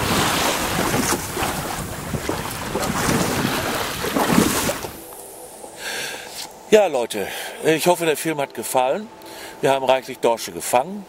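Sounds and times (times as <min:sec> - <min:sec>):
wind noise on microphone: 0:00.0 - 0:05.0
waves splashing against boat hull: 0:00.0 - 0:05.1.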